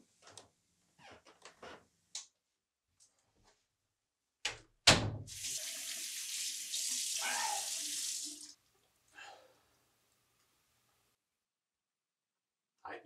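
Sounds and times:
faucet running into sink: 5.3 - 8.6
hands washing under water: 5.3 - 8.6.

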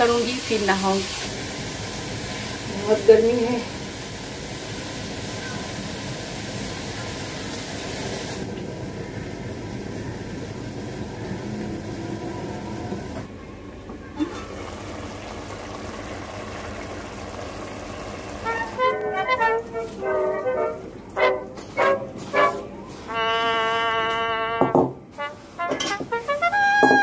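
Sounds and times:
curry simmering in a pan: 0.0 - 13.3
music: 18.4 - 27.0.

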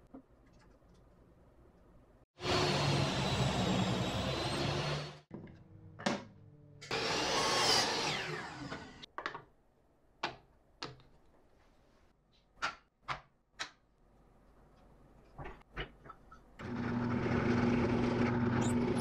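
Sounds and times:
power saw running: 2.4 - 5.2, 6.9 - 9.0
miter saw spinning down: 6.9 - 9.0.

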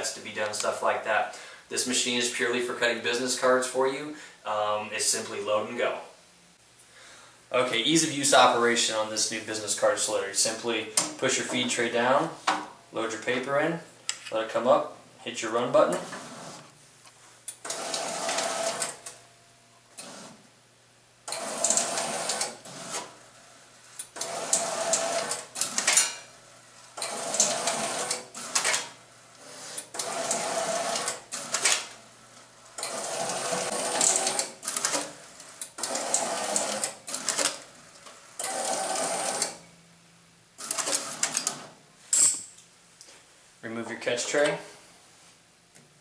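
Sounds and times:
card cutter whirring and clattering: 27.0 - 28.9, 32.8 - 37.6.

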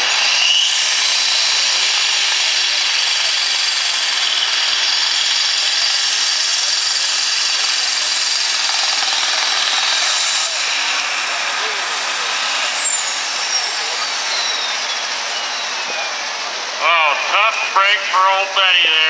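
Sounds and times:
pulling tractor engine screaming: 0.0 - 19.0.

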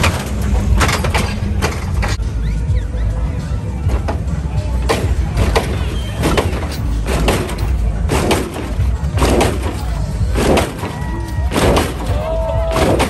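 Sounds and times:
steady low rumble: 0.0 - 13.0
car body slamming down: 4.9 - 13.0.

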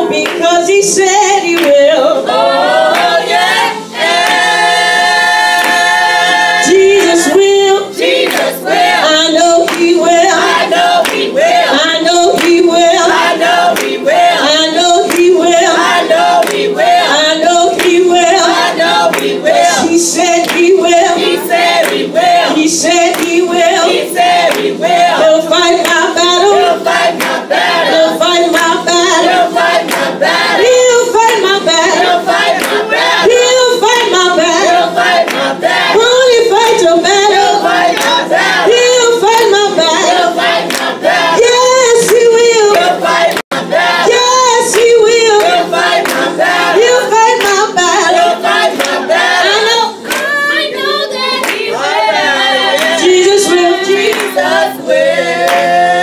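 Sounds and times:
gospel singing with lead singer: 0.0 - 56.0
handclaps: 0.2 - 0.4, 1.6 - 1.9, 2.9 - 3.3, 4.2 - 4.5, 5.5 - 5.9, 8.0 - 8.9, 9.6 - 10.0, 10.8 - 11.3, 12.3 - 14.3, 15.0 - 17.0, 17.8 - 18.0, 18.6 - 19.4, 20.4 - 22.1, 23.1 - 23.4, 24.2 - 24.7, 26.6 - 27.7, 29.6 - 30.1, 31.2 - 33.1, 35.0 - 35.9, 37.9 - 38.3, 39.3 - 39.6, 40.4 - 41.0, 42.0 - 43.5, 44.7 - 46.3, 47.4 - 47.6, 48.2 - 49.0, 50.1 - 50.4, 51.4 - 51.7, 52.8 - 53.0, 54.1 - 54.4, 55.5 - 55.7.

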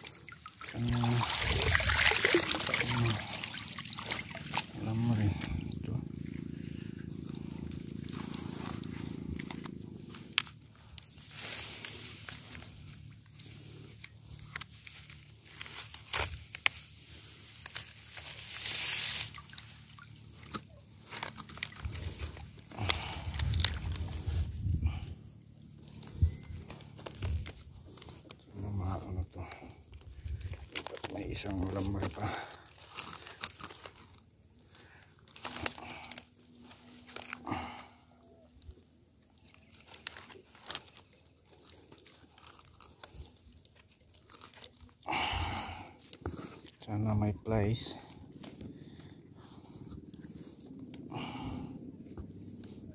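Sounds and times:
dry leaves and fabric rustling: 0.2 - 5.7, 6.5 - 25.0, 25.7 - 47.0
faint clicks and crunches: 4.5 - 25.1, 25.7 - 52.9
brushing rustle: 6.6 - 20.3.

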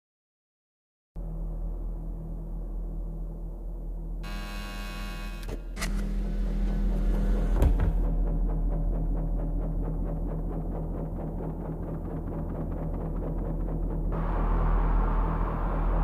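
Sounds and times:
harsh buzzing tone: 4.2 - 6.8.

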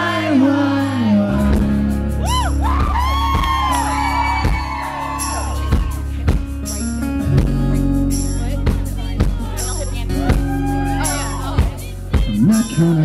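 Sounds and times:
acoustic guitars strumming: 0.0 - 13.0
audience whooping and screaming: 2.2 - 6.4, 10.2 - 11.8.

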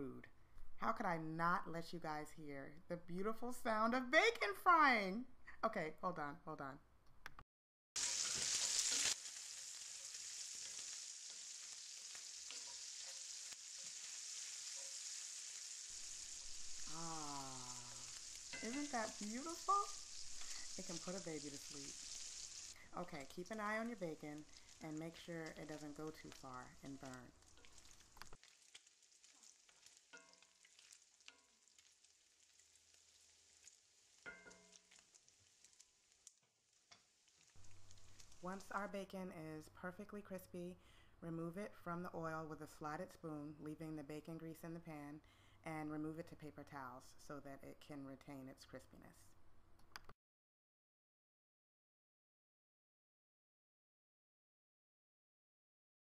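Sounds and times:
bacon sizzling in a skillet: 8.0 - 39.0
wooden spoon stirring: 9.9 - 15.2, 18.1 - 38.6.

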